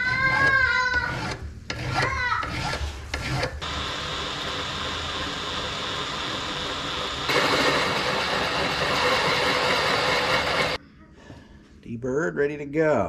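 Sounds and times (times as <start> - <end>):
drill bit cutting into metal: 3.6 - 10.8.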